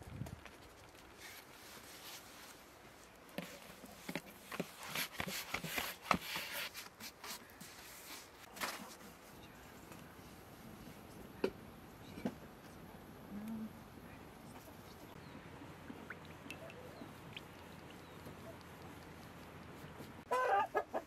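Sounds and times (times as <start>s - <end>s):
soft taps rubs and rustles: 0.2s - 9.2s.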